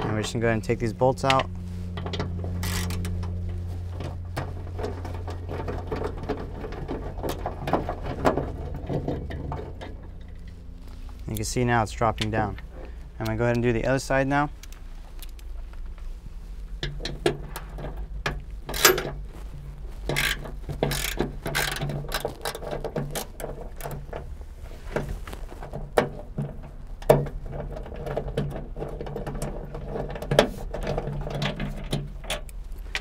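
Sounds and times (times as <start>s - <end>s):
hand ratchet clicking: 2.6s - 3.1s, 20.1s - 23.4s.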